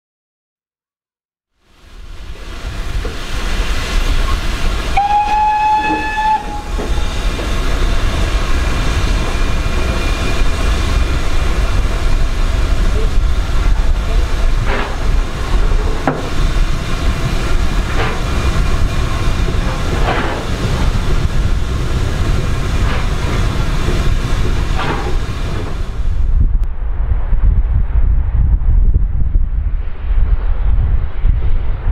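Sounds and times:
train rumbling: 0:01.6 - 0:31.9
steam locomotive whistle: 0:04.2 - 0:07.3.

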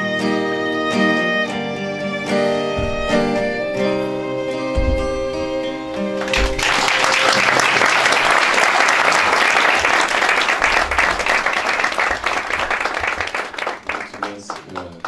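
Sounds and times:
violin note: 0:01.2 - 0:06.2
audience applauding: 0:06.1 - 0:15.0.

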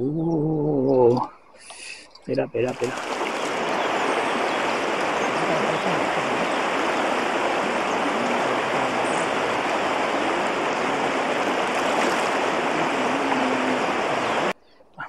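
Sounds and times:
river water rushing: 0:02.7 - 0:14.6.

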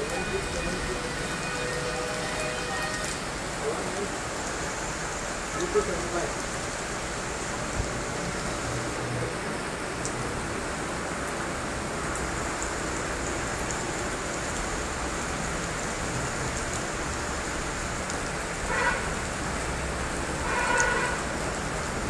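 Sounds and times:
steady rain falling: 0:00.0 - 0:22.0
small drips: 0:12.0 - 0:22.0.

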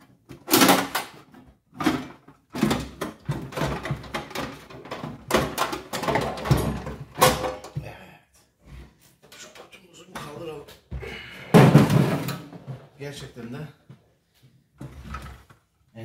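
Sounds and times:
metal tool case knocks and rattles: 0:00.3 - 0:07.8, 0:11.6 - 0:12.6.

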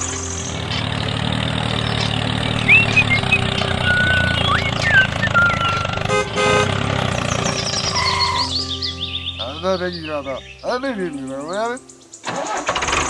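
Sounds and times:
tractor engine running: 0:00.0 - 0:08.7, 0:12.2 - 0:13.0
whistling chirps: 0:01.8 - 0:06.1, 0:07.5 - 0:09.4
horn tooting: 0:02.3 - 0:08.7.

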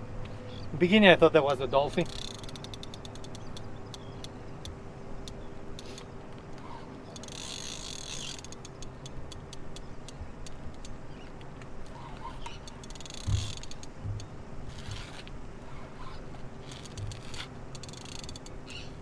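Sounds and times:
fishing reel clicking: 0:02.0 - 0:04.3, 0:07.1 - 0:09.8, 0:12.6 - 0:13.9, 0:16.7 - 0:18.8.

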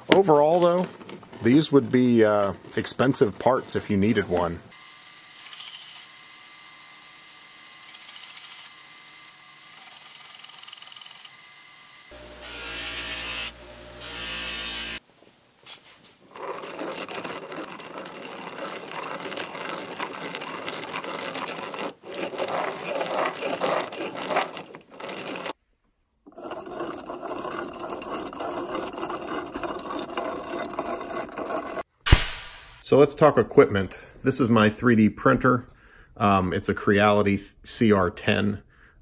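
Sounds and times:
bench buffer humming: 0:11.2 - 0:15.0.

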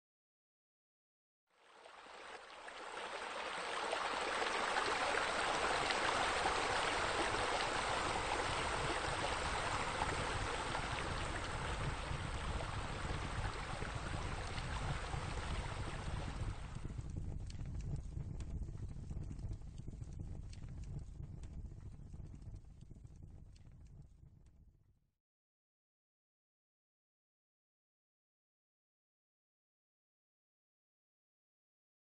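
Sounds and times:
water splashing into pool: 0:01.6 - 0:16.7.

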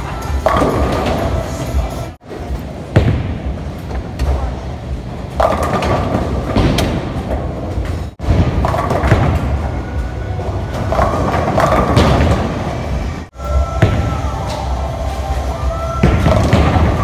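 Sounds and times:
bowling alley background noise: 0:00.0 - 0:17.0
bowling ball thudding and rolling: 0:00.3 - 0:01.6, 0:05.3 - 0:13.0, 0:16.0 - 0:17.0.

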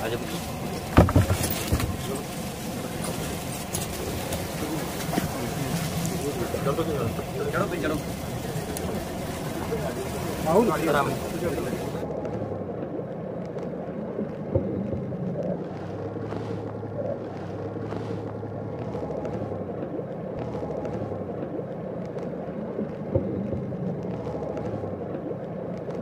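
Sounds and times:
outboard motor humming: 0:00.0 - 0:26.0.

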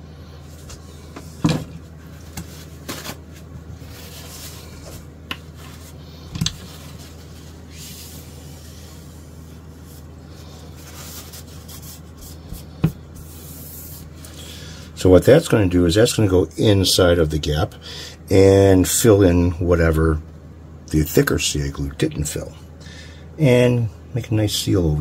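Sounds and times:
soft rubbing on towel: 0:01.9 - 0:14.1.

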